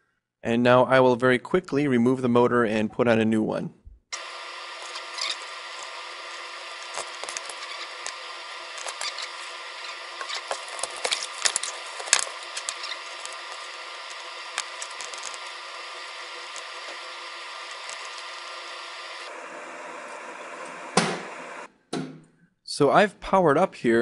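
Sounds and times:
steady hiss: 4.2s - 21.7s.

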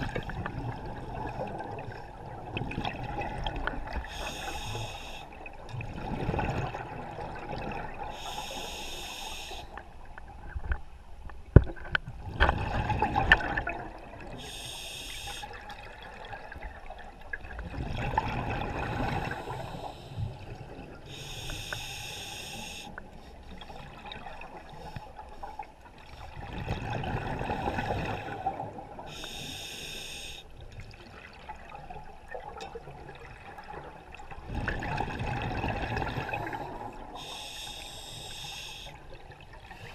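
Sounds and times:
regulator hiss on inhale: 4.0s - 5.4s, 8.1s - 9.8s, 14.4s - 15.6s, 19.0s - 20.4s, 21.1s - 23.4s, 29.1s - 30.5s, 36.4s - 39.0s.

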